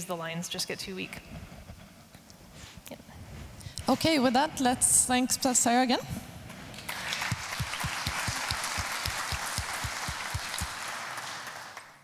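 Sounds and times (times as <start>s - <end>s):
audience applause: 6.7s - 12.0s.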